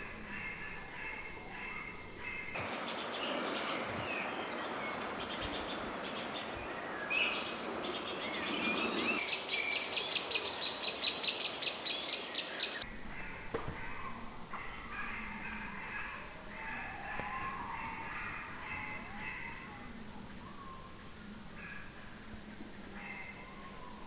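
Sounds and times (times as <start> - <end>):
birds chirping and singing: 0.2 - 22.0.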